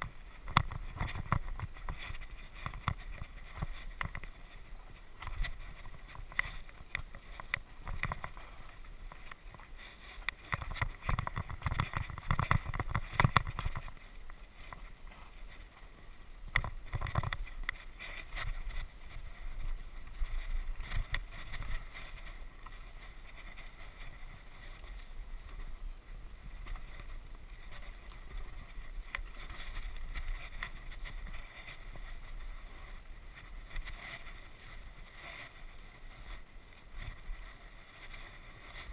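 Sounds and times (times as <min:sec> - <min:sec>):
bike rattling and knocking: 0:00.0 - 0:15.6, 0:16.5 - 0:25.6
wind rushing on microphone: 0:00.0 - 0:38.9.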